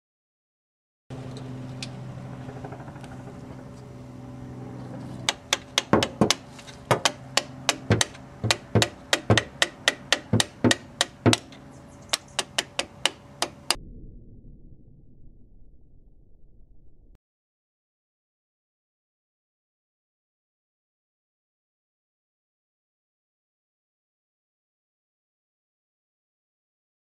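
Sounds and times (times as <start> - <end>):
hammer tapping on metal pin: 5.3 - 13.8.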